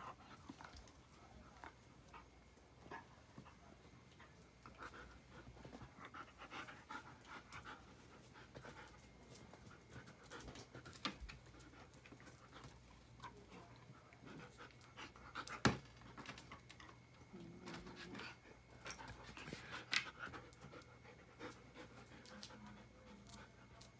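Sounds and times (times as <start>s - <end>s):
dog panting: 2.0s - 15.7s, 16.4s - 23.9s.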